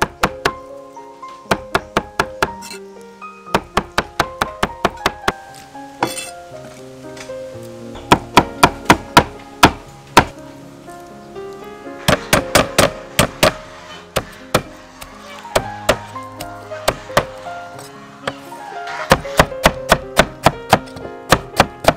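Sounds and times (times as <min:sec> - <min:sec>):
background music: 0:00.0 - 0:21.9
knife chopping on wooden board: 0:12.1 - 0:13.6, 0:14.2 - 0:14.7, 0:16.8 - 0:17.3, 0:19.1 - 0:21.9.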